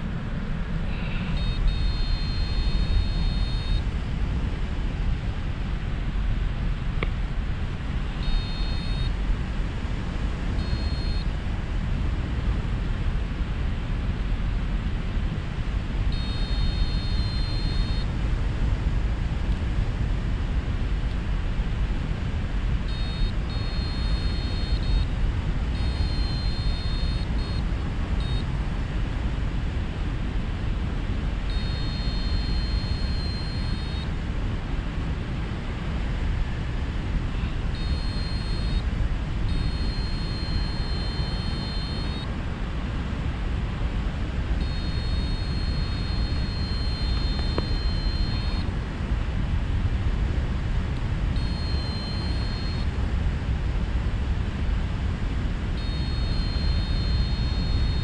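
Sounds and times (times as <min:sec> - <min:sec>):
high-pitched beeping tone: 0:01.1 - 0:03.8, 0:08.2 - 0:09.1, 0:10.6 - 0:11.2, 0:16.2 - 0:18.0, 0:22.9 - 0:25.0, 0:25.8 - 0:27.6, 0:31.5 - 0:34.0, 0:37.8 - 0:38.8, 0:39.5 - 0:42.2, 0:44.6 - 0:48.6, 0:51.4 - 0:52.8, 0:55.8 - 0:58.0.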